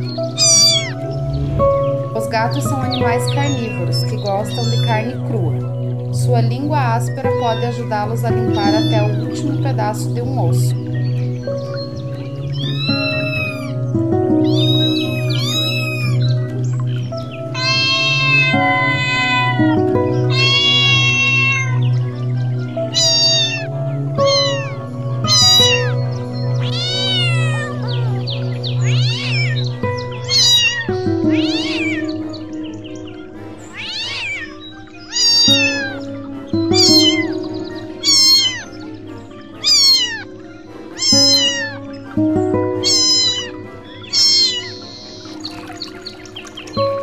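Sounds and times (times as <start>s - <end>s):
background music: 0.0s - 47.0s
cat meowing: 0.1s - 1.3s, 2.9s - 5.7s, 7.4s - 9.7s, 12.5s - 21.9s, 22.8s - 32.2s, 33.6s - 38.8s, 39.6s - 45.7s.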